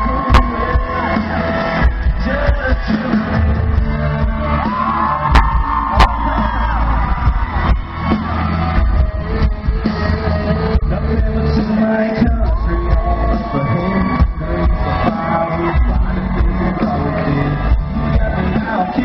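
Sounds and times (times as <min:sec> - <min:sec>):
person singing: 0:00.0 - 0:07.0, 0:10.4 - 0:19.0
live country band playing: 0:00.0 - 0:19.0
crowd shouting: 0:04.2 - 0:09.1, 0:12.5 - 0:19.0.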